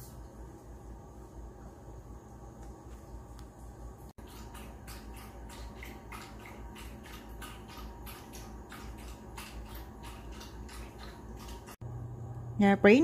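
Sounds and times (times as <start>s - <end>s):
dog lapping water from metal bowl: 4.2s - 11.8s.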